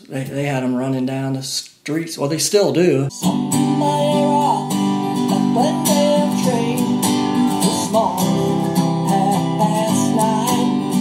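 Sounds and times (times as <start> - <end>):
sliding lead melody: 3.2 - 11.0
strummed acoustic guitar: 3.2 - 11.0.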